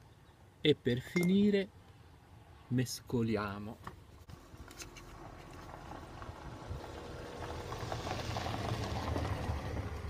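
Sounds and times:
vehicle engine rumble approaching: 4.2s - 10.0s.

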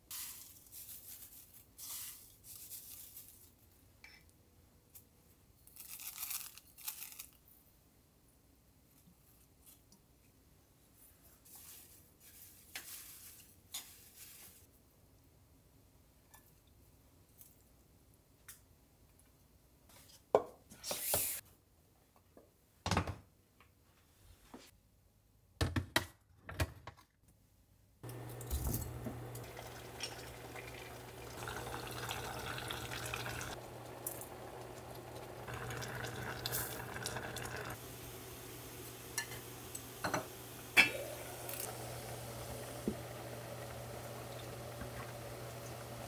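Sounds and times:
low hum with hiss: 28.0s - 46.0s
liquid pouring into pot: 29.4s - 38.0s
knocks and clinks of pots: 39.1s - 41.2s.

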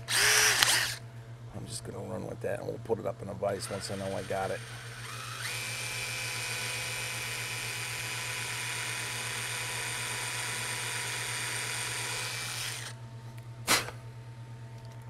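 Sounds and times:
cordless drill whining: 0.0s - 1.0s, 3.6s - 12.9s.

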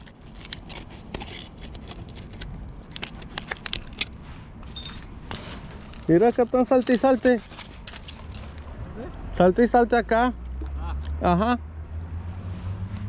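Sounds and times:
rummaging in tackle bag: 0.0s - 8.6s.

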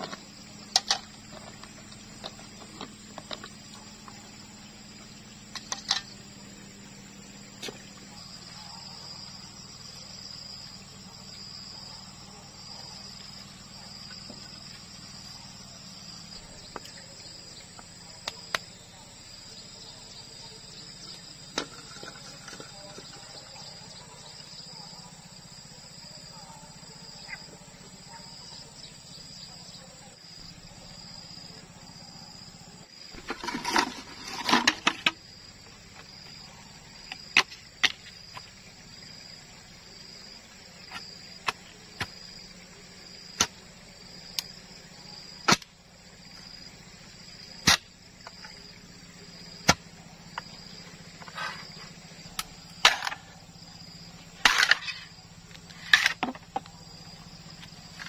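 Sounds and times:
insects chirring: 0.0s - 58.0s
bamboo rustling: 33.1s - 36.0s, 51.2s - 52.0s
machete striking bamboo: 45.4s - 45.7s, 47.6s - 47.9s, 49.6s - 49.8s, 52.4s - 53.3s, 54.4s - 55.1s.

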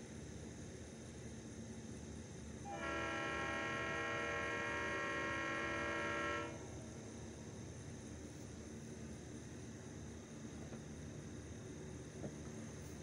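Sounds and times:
locomotive air horn blast: 2.6s - 6.8s.

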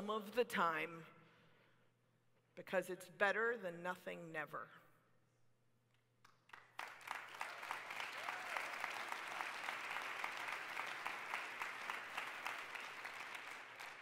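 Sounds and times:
audience applauding: 6.5s - 14.0s.

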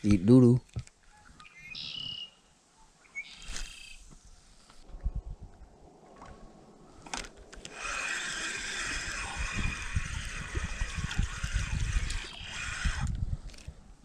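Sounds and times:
spinning reel grinding whir: 7.6s - 13.7s.

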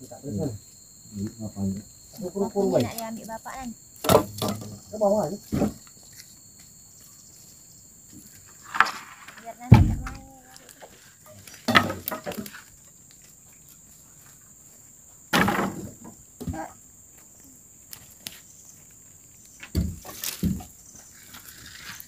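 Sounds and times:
faint high insect buzz: 0.0s - 22.0s
boards and branches clattering: 4.0s - 6.4s, 8.1s - 13.3s, 15.3s - 16.7s, 19.5s - 22.0s.

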